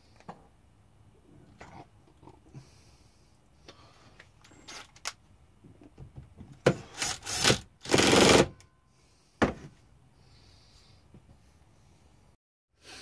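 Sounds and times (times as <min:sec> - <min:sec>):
cordless drill driving screws: 0:06.9 - 0:08.5.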